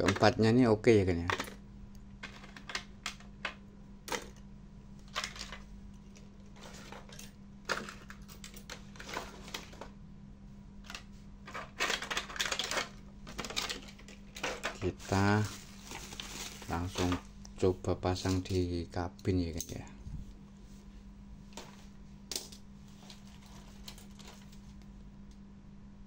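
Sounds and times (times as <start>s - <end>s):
faint steady hum: 0.0s - 26.0s
plastic tray and boxes handled: 2.2s - 4.4s, 6.5s - 9.9s, 10.8s - 17.3s.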